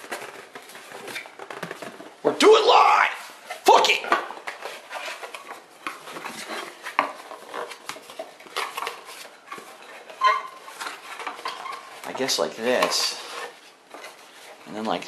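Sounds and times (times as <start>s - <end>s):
cardboard crackling and rustling: 0.0s - 15.0s.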